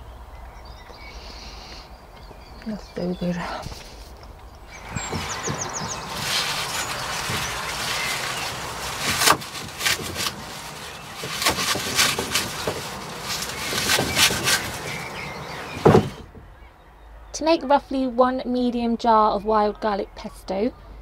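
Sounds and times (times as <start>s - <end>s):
leaves rustling: 2.7s - 16.3s.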